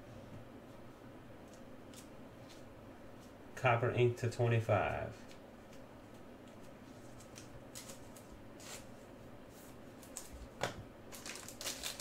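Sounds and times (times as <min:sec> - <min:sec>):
trading cards rustling and tapping: 0:05.2 - 0:08.8
crinkling: 0:06.4 - 0:08.9, 0:09.9 - 0:12.0.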